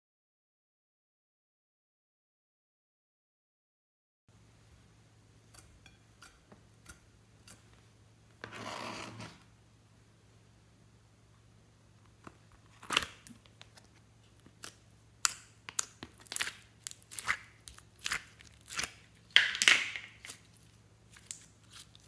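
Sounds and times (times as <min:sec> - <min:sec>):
slime clicking and crackling: 0:12.9 - 0:22.0.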